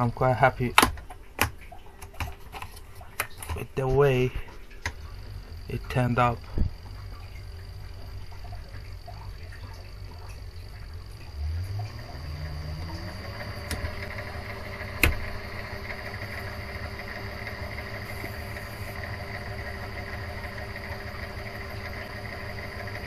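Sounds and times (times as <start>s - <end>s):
lathe motor whining: 4.9s - 23.0s.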